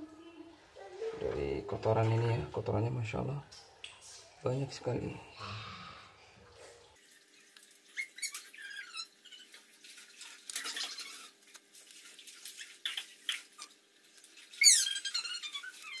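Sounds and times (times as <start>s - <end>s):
sharp falling squeak: 14.6s - 16.0s.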